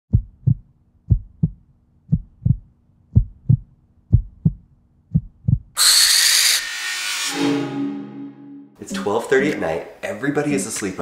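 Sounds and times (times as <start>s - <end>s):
heartbeat thumps: 0.1s - 5.8s.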